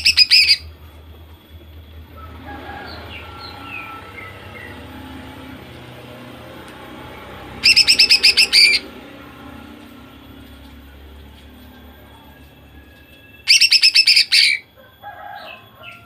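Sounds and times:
bird calling: 0.0s - 1.0s, 2.3s - 9.8s, 13.0s - 16.0s.

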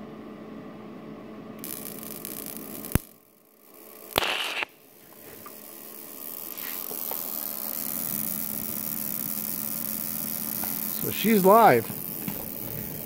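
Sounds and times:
welder arc start hissing burst: 1.6s - 3.1s, 4.1s - 4.8s, 5.4s - 13.0s.

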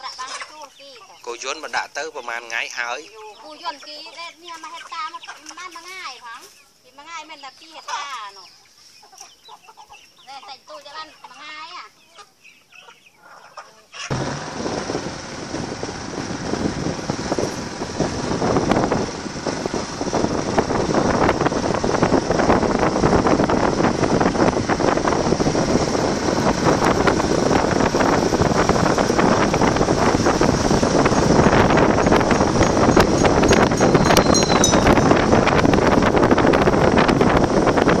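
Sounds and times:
vehicle road noise on dirt road: 14.1s - 38.0s
wind buffeting microphone: 14.1s - 38.0s.

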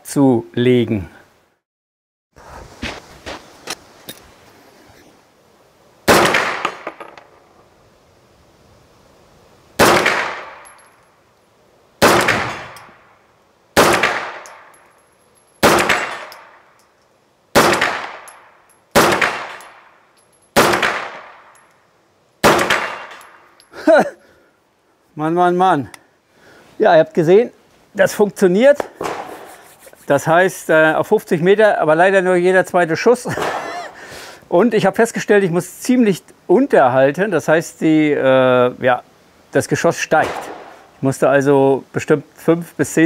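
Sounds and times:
rifle single shots: 6.0s - 7.2s, 9.8s - 10.8s, 12.0s - 13.1s, 13.8s - 14.8s, 15.6s - 16.7s, 17.5s - 21.6s, 22.4s - 23.5s, 28.9s - 29.4s, 40.2s - 40.8s
gunshot echo: 6.1s - 7.0s, 9.8s - 10.6s, 12.0s - 13.0s, 13.8s - 14.7s, 15.6s - 16.6s, 17.6s - 18.4s, 19.0s - 19.9s, 20.6s - 21.5s, 22.4s - 23.4s, 29.0s - 29.4s, 40.2s - 40.8s.

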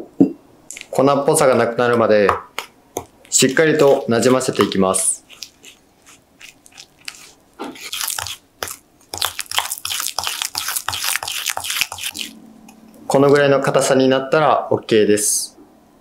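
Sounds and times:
spoon scraping glass bowl: 3.3s - 12.4s.

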